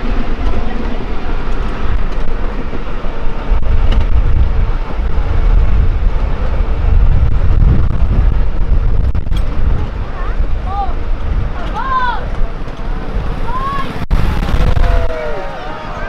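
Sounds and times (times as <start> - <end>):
miniature train rumbling on track: 0.0 - 14.1.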